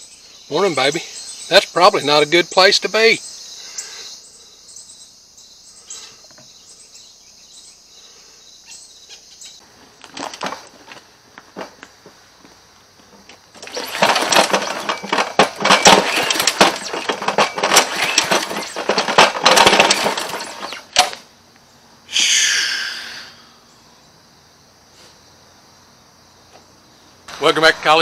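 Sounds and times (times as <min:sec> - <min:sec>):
string trimmer engine sputtering: 0:13.6 - 0:21.1
high squeal: 0:22.1 - 0:23.3.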